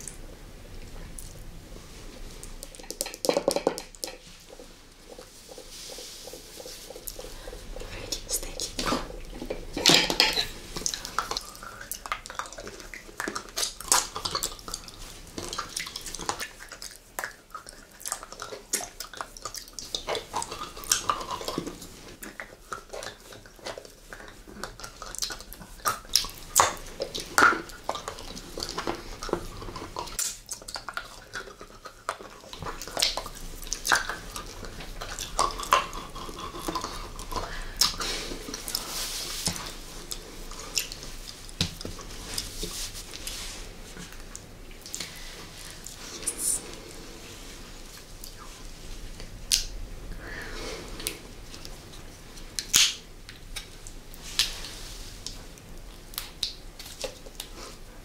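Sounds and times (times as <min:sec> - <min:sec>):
candy clicking against teeth: 0:52.6 - 0:53.7.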